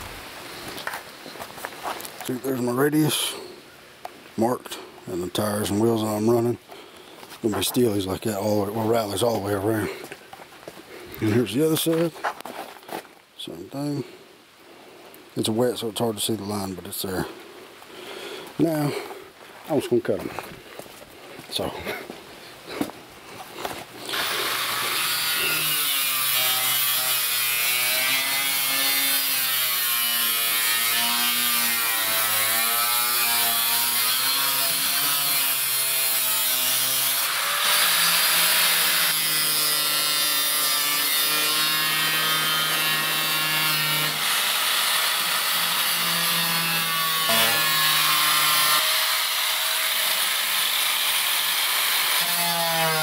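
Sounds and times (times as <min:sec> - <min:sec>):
angle grinder cutting metal: 0:24.0 - 0:53.0.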